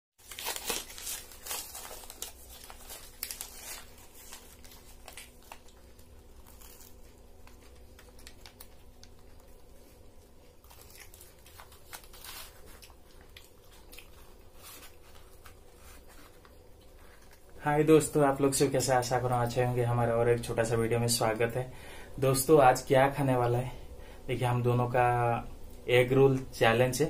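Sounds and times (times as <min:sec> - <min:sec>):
paper wrappers crinkling: 0:00.2 - 0:19.6.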